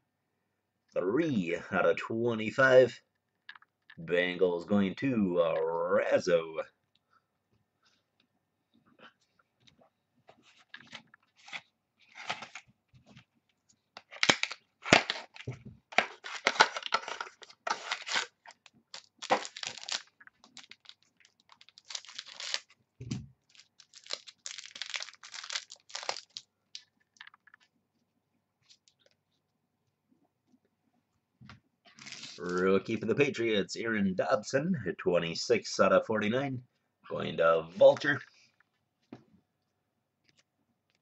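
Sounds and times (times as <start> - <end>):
foil wrapper tearing and crinkling: 14.1 - 22.8, 23.5 - 26.4.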